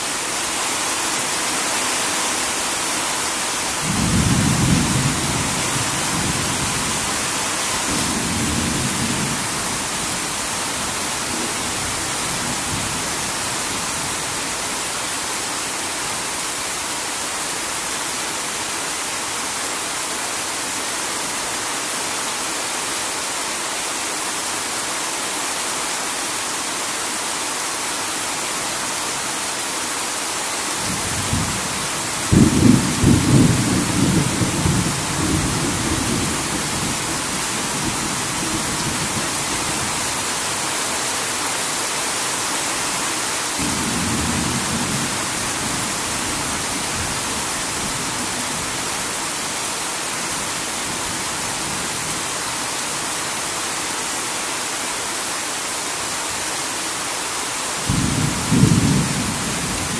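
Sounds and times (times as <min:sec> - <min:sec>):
heavy rain: 0:00.0 - 0:59.9
thunder rumbling: 0:32.3 - 0:39.2.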